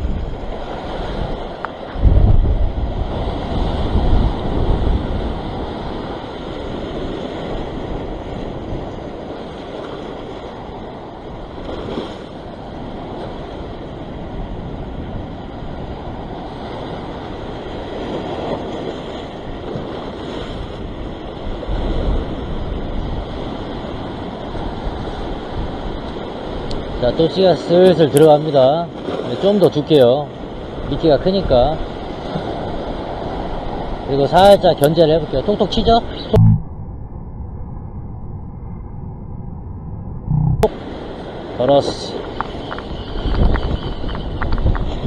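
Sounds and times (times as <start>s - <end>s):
wind buffeting microphone: 0.0s - 28.3s, 30.3s - 45.0s
surf breaking over rocks: 40.6s - 45.0s.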